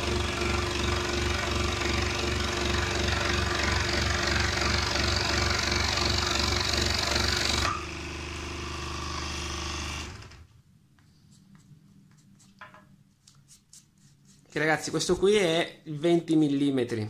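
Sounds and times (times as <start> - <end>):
scroll saw cutting wood: 0.0 - 10.5.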